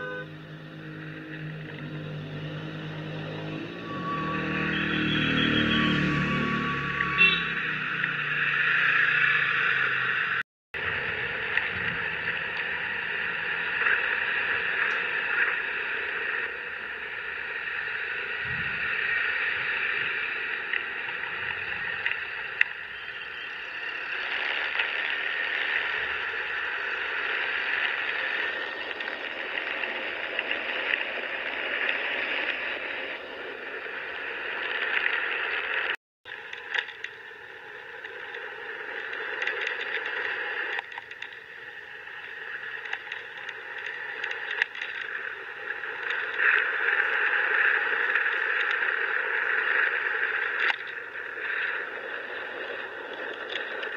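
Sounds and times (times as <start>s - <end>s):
road noise: 0.0s - 53.9s
rushing wind on microphone: 17.9s - 20.4s.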